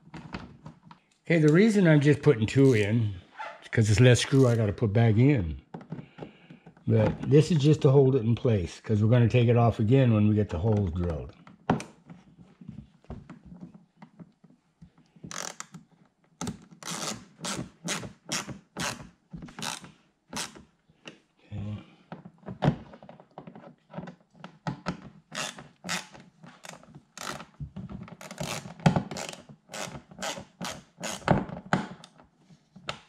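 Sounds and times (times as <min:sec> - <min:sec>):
screwdriver clicks and scrapes: 0:15.3 - 0:15.8, 0:16.8 - 0:19.0, 0:19.6 - 0:20.6, 0:25.3 - 0:27.5, 0:28.2 - 0:31.3.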